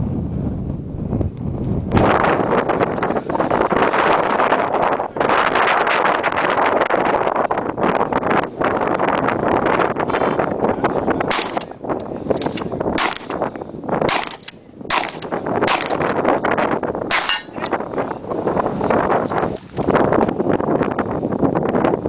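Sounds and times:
wind buffeting microphone: 0.0s - 22.0s
shotgun shots: 11.3s - 11.7s, 12.4s - 13.4s, 14.0s - 16.2s, 17.1s - 17.7s.

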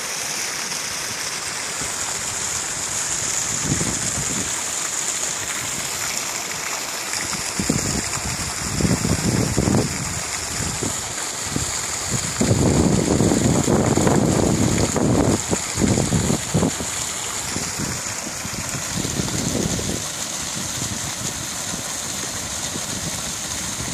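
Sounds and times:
waterfall splashing into creek: 0.0s - 23.9s
wind buffeting microphone: 3.2s - 4.5s, 7.3s - 23.9s.

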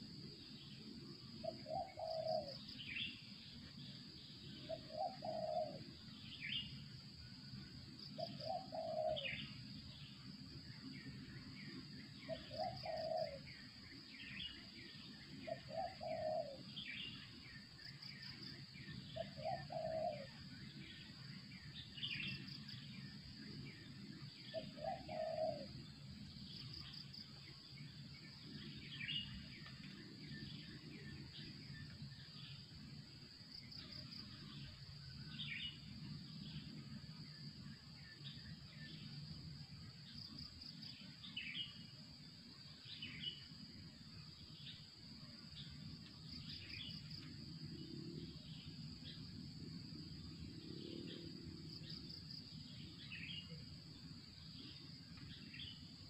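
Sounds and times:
high insect drone: 0.0s - 56.0s
dove cooing: 1.4s - 2.6s, 4.7s - 5.9s, 8.2s - 9.4s, 12.3s - 13.5s, 15.4s - 16.8s, 19.2s - 20.4s, 24.5s - 25.7s.

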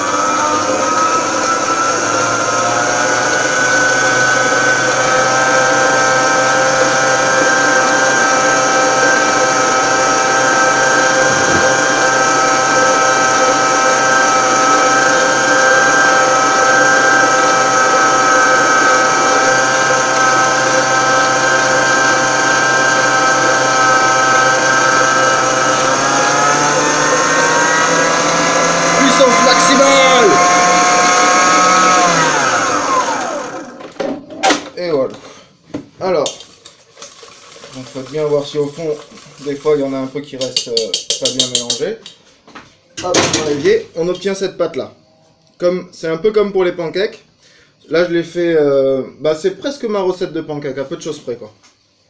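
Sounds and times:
stand mixer motor whine: 0.0s - 34.0s.

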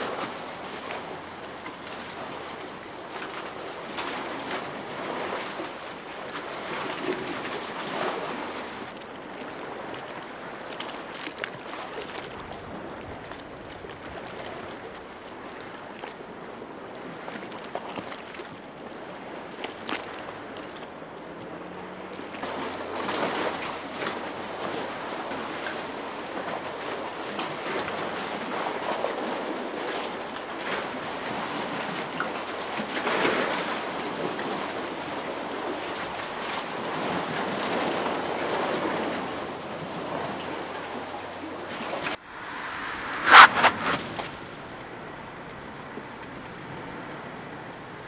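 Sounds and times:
waves slapping against a quay: 0.0s - 44.9s
wind buffeting microphone: 42.0s - 45.2s.

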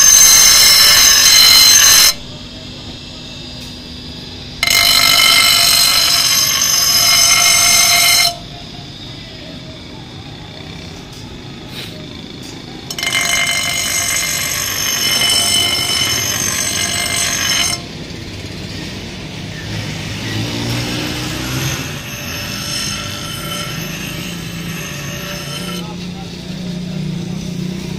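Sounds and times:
grinder grinding steel: 0.0s - 2.4s, 4.6s - 8.5s, 12.8s - 18.5s, 19.7s - 26.2s.

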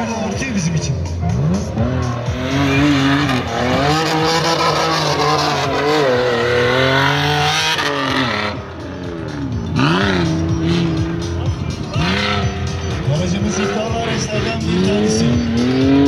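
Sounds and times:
car engine revving hard: 1.2s - 16.0s.

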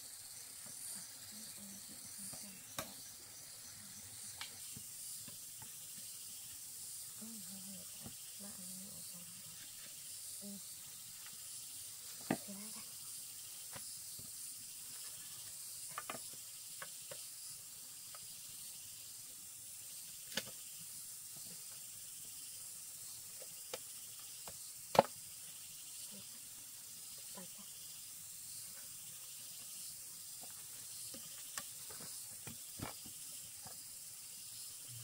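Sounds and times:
steady high hiss: 0.0s - 35.0s
bamboo poles knocking together: 24.4s - 25.2s, 31.1s - 33.2s.

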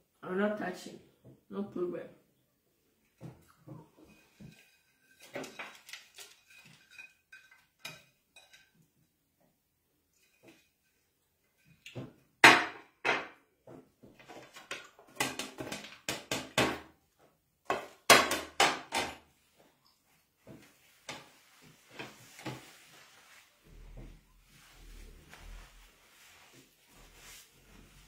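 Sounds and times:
plates clattering on a table: 12.4s - 13.4s.

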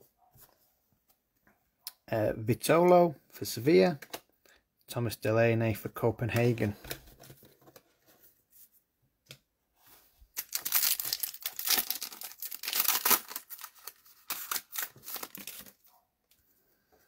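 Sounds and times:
wrapper tearing and crumpling: 10.4s - 15.8s.

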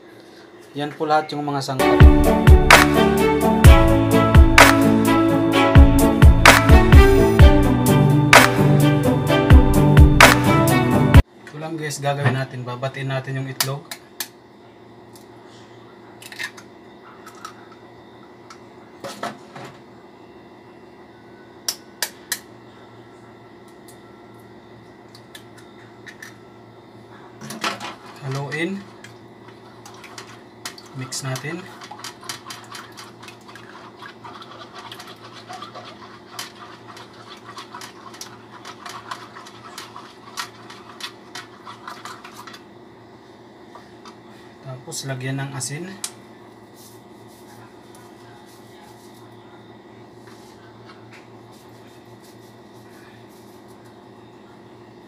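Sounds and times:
faint steady hum: 11.2s - 55.0s
fork beating eggs on plate: 29.5s - 42.7s.

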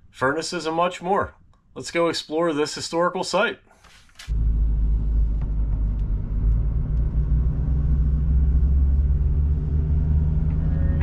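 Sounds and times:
car engine and tyres rumbling: 4.3s - 11.0s.

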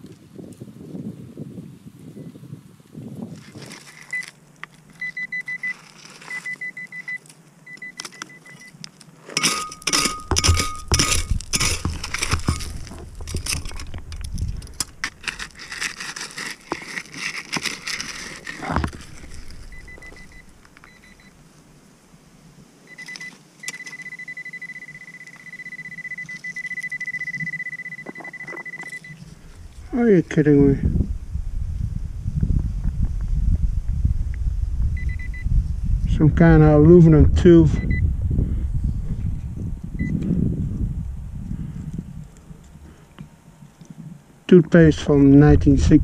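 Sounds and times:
stones and gravel clattering: 3.2s - 21.5s, 22.9s - 29.9s
metal detector beeping: 4.0s - 4.3s, 5.0s - 8.8s, 9.4s - 17.0s, 17.6s - 21.4s, 22.9s - 29.6s, 35.0s - 35.5s, 37.8s - 38.1s, 40.0s - 40.2s.

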